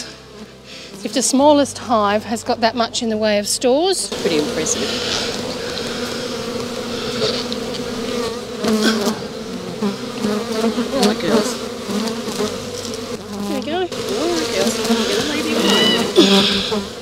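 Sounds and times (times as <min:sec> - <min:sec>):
bees buzzing: 0:00.0 - 0:17.0
bees zipping past: 0:04.1 - 0:17.0.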